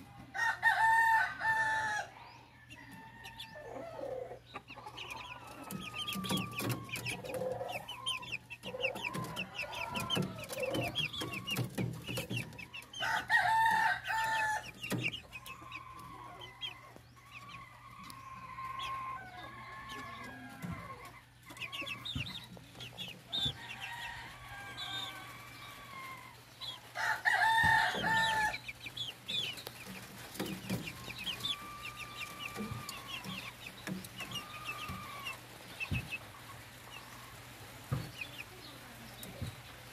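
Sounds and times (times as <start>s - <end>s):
chicks clucking and peeping: 0.0s - 39.9s
loud long chicken calls: 12.9s - 14.8s, 15.4s - 22.0s, 23.4s - 28.6s, 30.7s - 33.6s, 34.2s - 35.8s.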